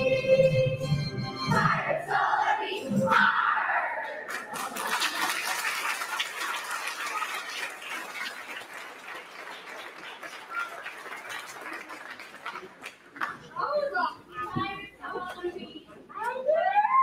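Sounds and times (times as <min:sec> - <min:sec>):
crowd applauding and cheering: 0:04.2 - 0:13.5.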